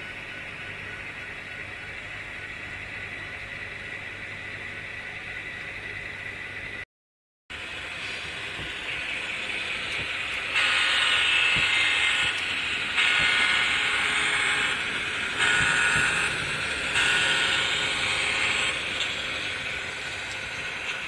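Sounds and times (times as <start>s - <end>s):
model train rolling: 7.6s - 21.0s.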